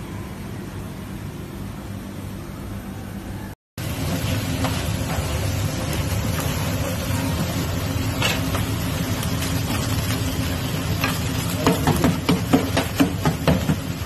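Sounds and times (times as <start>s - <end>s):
meat sizzling in a pan: 3.8s - 14.0s.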